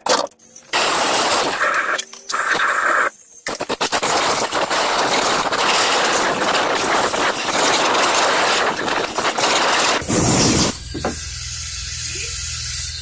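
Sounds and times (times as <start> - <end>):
loud mechanical noise with rapid knocks: 3.5 - 11.2.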